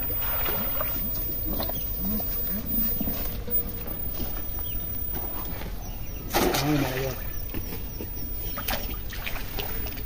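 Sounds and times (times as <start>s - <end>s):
rake splashing into pond: 6.3s - 7.2s.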